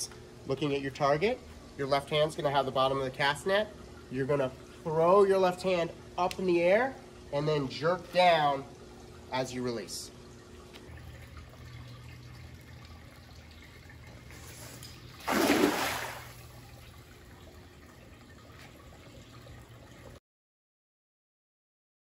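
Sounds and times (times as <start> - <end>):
water trickling into pool: 0.0 - 20.2
net splashing into water: 15.2 - 16.6.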